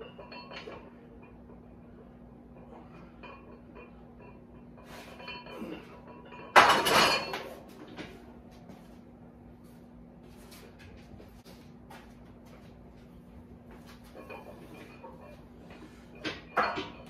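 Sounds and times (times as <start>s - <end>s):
barbell clanking on metal hooks: 0.0s - 1.7s, 2.6s - 7.6s, 16.2s - 17.0s
weight plates clinking and ringing: 0.0s - 8.1s, 14.0s - 17.0s
steady low hum: 0.0s - 17.0s.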